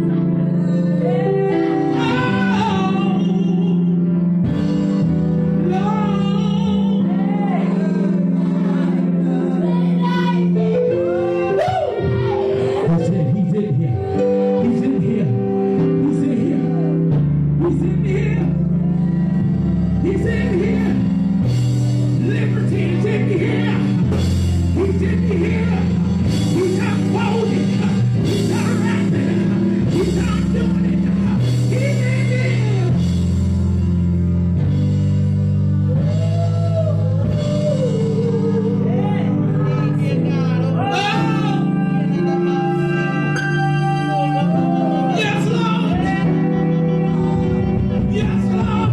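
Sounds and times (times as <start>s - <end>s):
person singing: 0.0s - 4.9s, 5.5s - 21.2s, 35.7s - 48.9s
bass line: 0.0s - 48.9s
gospel band playing: 0.0s - 48.9s
drums: 23.8s - 34.0s.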